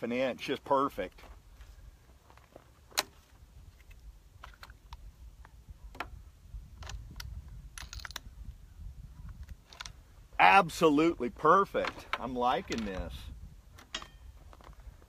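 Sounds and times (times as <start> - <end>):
clicks and taps handling rifle: 2.9 - 6.2, 9.3 - 10.0, 11.8 - 13.2
wind rumble on microphone: 3.3 - 15.0.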